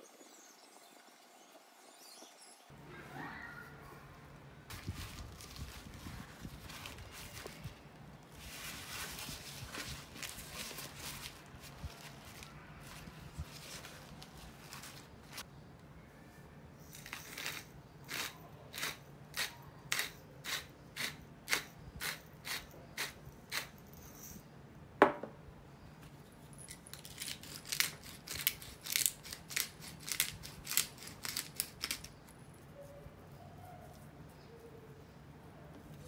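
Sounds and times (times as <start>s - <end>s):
spice grinders clicking: 16.9s - 23.7s, 26.6s - 32.4s
grinder knocking on table: 25.0s - 25.4s.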